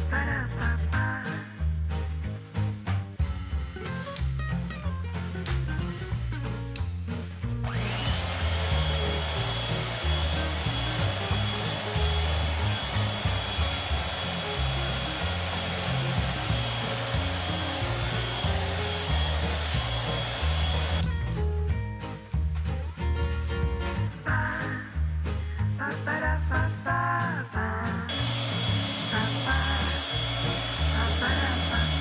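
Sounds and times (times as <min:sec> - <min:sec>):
electric hand mixer whining: 0:07.6 - 0:21.0, 0:28.1 - 0:32.0.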